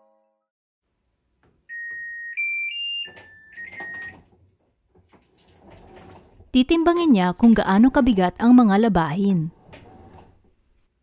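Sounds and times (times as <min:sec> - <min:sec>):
washing machine beep melody: 0:01.7 - 0:04.3.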